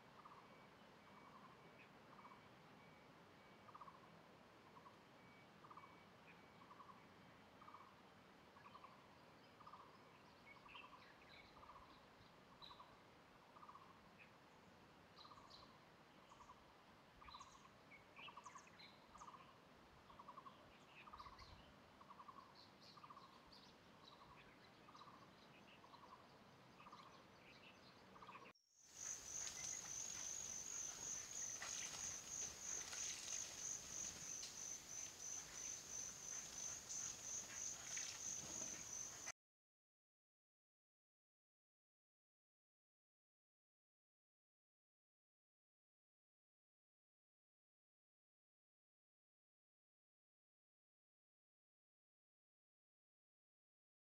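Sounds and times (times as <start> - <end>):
short bird chirps: 28.4 - 39.3
high insect trill: 28.9 - 39.3.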